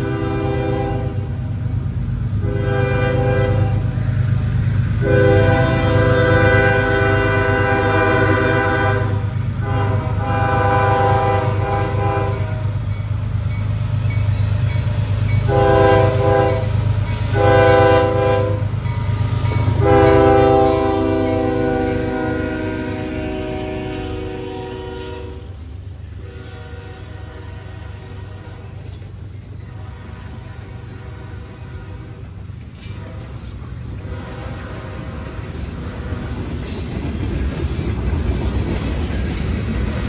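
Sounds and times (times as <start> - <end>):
locomotive air horn blasts: 0.0 - 1.4, 2.4 - 4.0, 4.9 - 12.8, 15.4 - 18.8, 19.6 - 28.9, 29.6 - 35.2.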